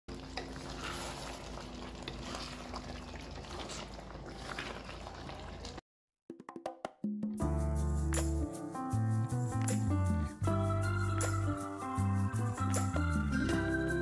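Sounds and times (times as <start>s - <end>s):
stew simmering in a pan: 0.1s - 5.8s.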